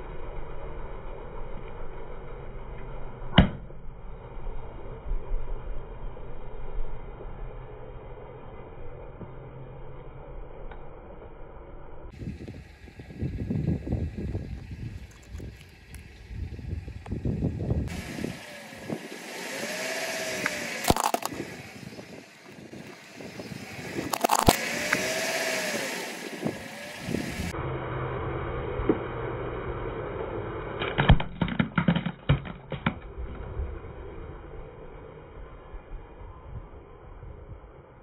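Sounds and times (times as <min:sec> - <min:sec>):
plastic cracking and snapping: 0:20.8 - 0:21.4, 0:24.1 - 0:24.6.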